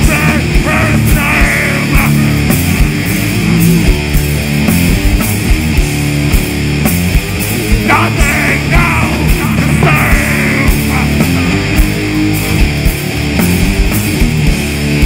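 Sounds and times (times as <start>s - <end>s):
vocalist singing into microphone: 0.0s - 2.5s, 7.9s - 11.6s
metal band playing: 0.0s - 15.0s.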